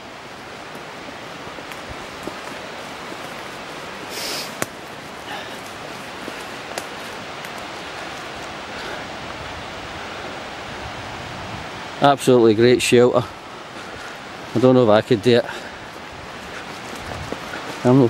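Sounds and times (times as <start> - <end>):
rushing background noise: 0.0 - 18.0
rustle: 0.0 - 18.0
footsteps on twigs and needles: 1.6 - 8.7, 13.7 - 18.0
twigs snapping: 4.4 - 4.8, 5.6 - 7.7.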